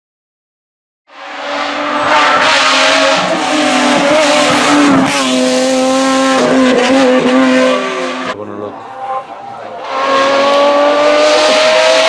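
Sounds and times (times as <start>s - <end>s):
race engine at high revs: 1.1s - 12.0s.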